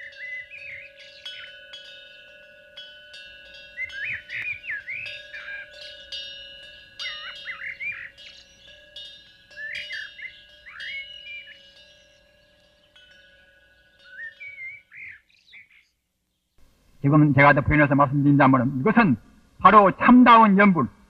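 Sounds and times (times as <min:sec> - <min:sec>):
ringing chime tone: 0:00.0 - 0:15.5
birds chirping: 0:00.0 - 0:21.0.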